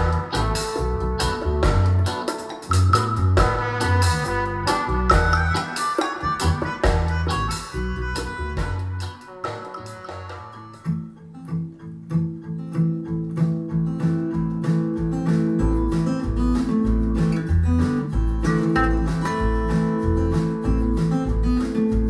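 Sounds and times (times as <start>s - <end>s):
deep bass notes: 0.0s - 5.6s, 6.2s - 9.1s, 14.4s - 22.0s
folk song on speakers: 0.0s - 22.0s.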